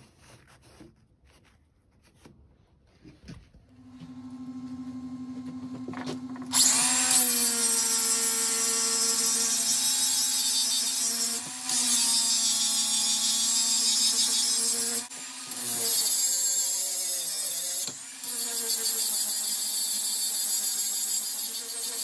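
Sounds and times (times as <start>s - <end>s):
angle grinder grinding steel: 6.2s - 19.6s.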